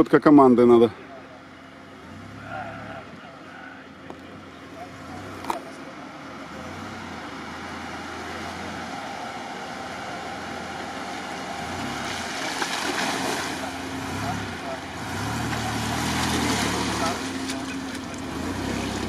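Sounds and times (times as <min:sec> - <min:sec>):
car engine at low revs: 0:00.0 - 0:19.0
tyres through mud and water: 0:03.9 - 0:19.0.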